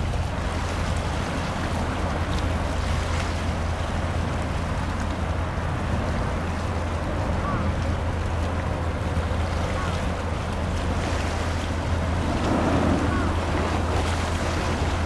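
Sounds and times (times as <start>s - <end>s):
ship engine drone: 0.0s - 15.0s
water wash: 0.0s - 15.0s.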